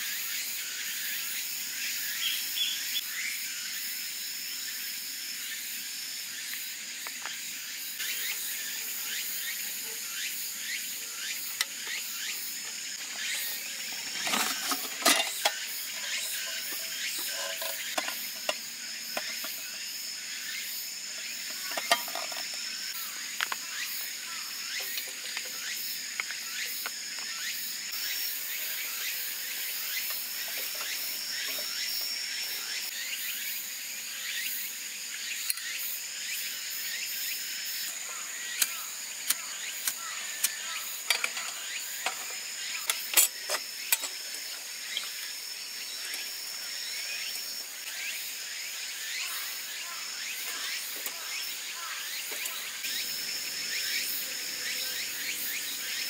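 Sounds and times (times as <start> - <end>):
insects trilling: 0.0 - 56.0
cookware clicks and metallic knocks: 14.0 - 18.6, 21.6 - 22.5.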